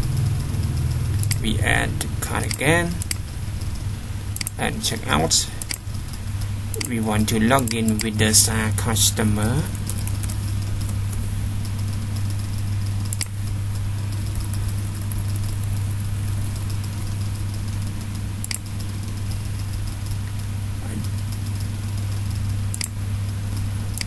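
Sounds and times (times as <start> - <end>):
low electrical hum with hiss: 0.0 - 24.0
mouse clicks: 13.0 - 13.3, 22.7 - 23.0.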